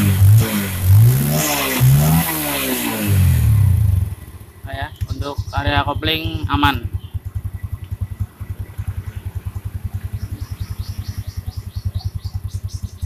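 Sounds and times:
motorcycle engine idling: 2.9 - 13.0.

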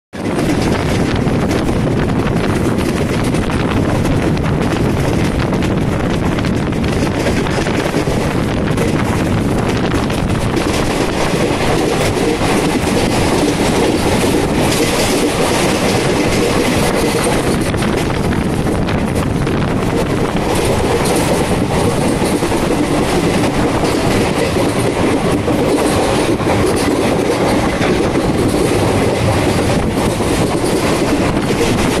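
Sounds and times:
train wheels rumbling on rails: 0.1 - 32.0.

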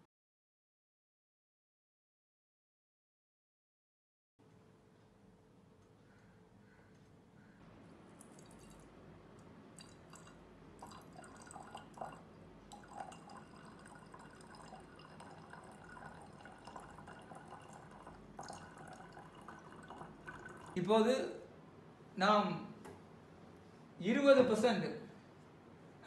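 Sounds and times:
liquid trickling into glass flask: 8.2 - 8.9, 9.8 - 20.8.

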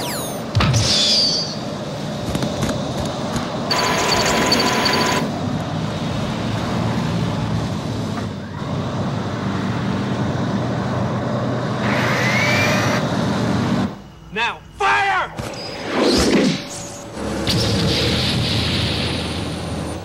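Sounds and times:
rising whine: 6.6 - 20.0.

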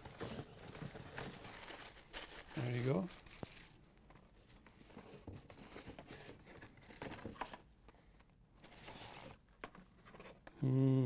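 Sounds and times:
packaging rustling and crinkling: 0.0 - 7.7.

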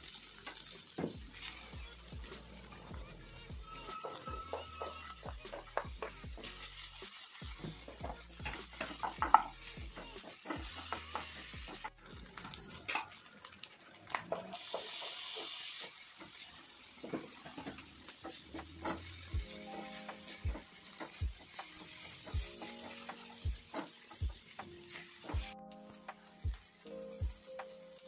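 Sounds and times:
prawns and onion sizzling in a pan: 0.0 - 28.0
spatula scraping and knocking a pan: 3.7 - 12.0, 14.6 - 26.3.

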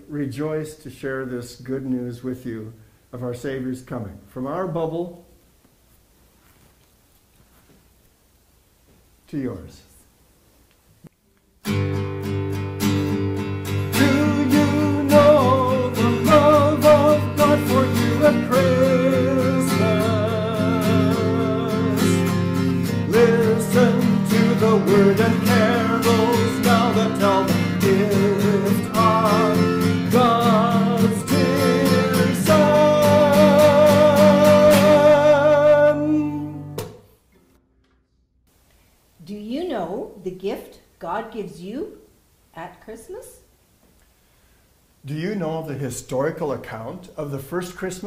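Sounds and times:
strummed guitar chords: 11.6 - 38.2
person singing with vibrato: 13.7 - 36.8.

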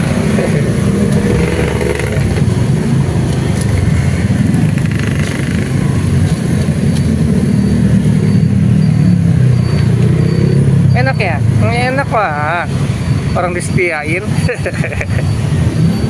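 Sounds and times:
motorcycles running close by: 0.0 - 12.0
low drone of motor traffic: 0.0 - 16.0.

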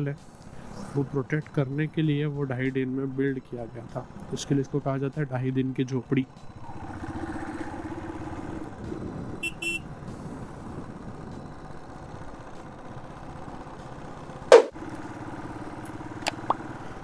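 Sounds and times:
motorcycle running: 0.0 - 17.0
short horn beeps: 9.4 - 9.8.

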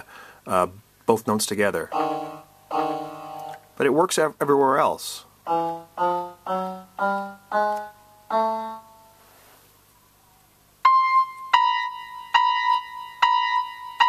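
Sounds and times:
two-tone keyboard notes: 1.8 - 3.8, 5.4 - 9.3, 10.8 - 14.0
electronic keyboard notes: 1.8 - 4.0, 5.4 - 9.3, 10.8 - 14.0.

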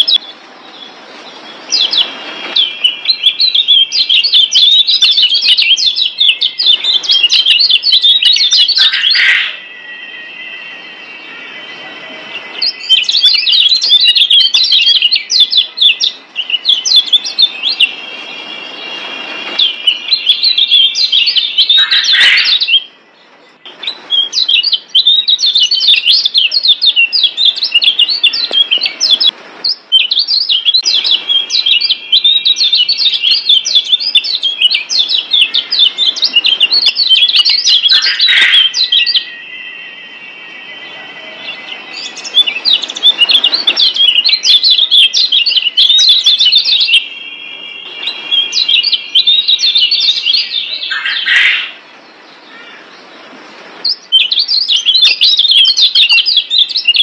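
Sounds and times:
bird chattering high chirps: 1.7 - 10.2, 12.4 - 23.0, 23.6 - 39.5, 41.6 - 51.8.

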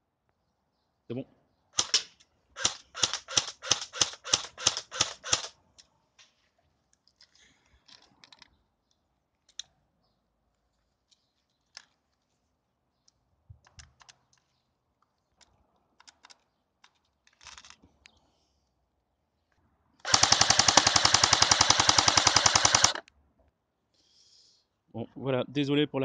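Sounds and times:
airsoft rifle firing: 1.8 - 5.6, 20.0 - 23.0.

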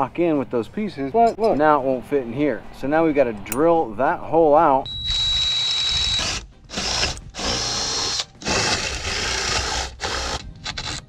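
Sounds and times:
cordless drill drilling: 4.9 - 11.0.

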